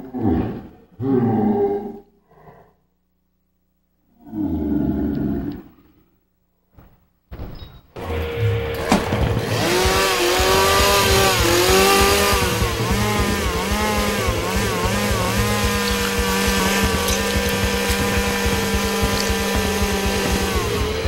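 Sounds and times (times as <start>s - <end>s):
small engine revving: 8.0s - 21.0s.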